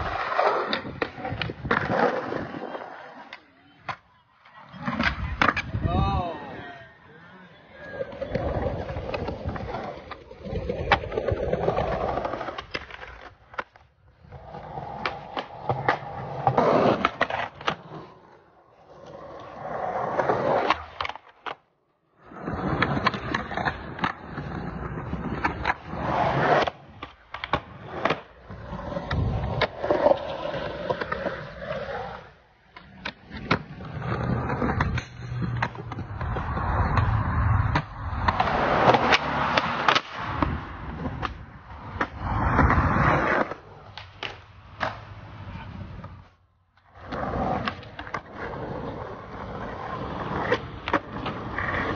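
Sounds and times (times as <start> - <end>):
skateboard clacks: 0.0 - 5.9, 32.7 - 46.2
skateboard wheels rolling on concrete: 0.0 - 51.9.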